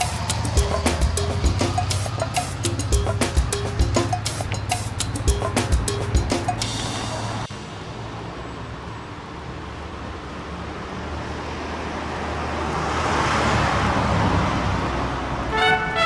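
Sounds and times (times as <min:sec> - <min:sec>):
rushing noise: 0:00.0 - 0:10.1.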